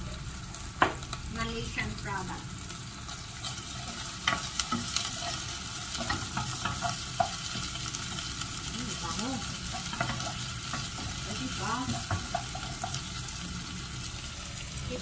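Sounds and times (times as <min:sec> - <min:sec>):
onion sizzling in hot oil: 0:00.0 - 0:15.0.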